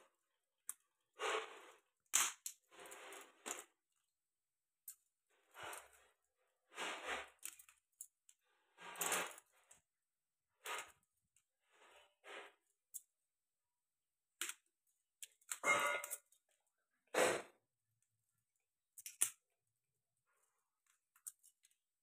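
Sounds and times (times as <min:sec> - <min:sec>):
scratchy cracking handling of crab: 0:19.0 - 0:19.4.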